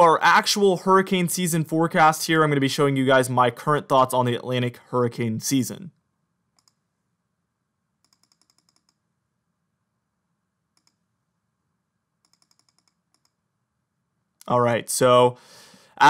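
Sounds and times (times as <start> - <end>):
computer mouse clicking: 6.6 - 6.8, 8.0 - 9.0, 10.8 - 11.0, 12.2 - 13.4.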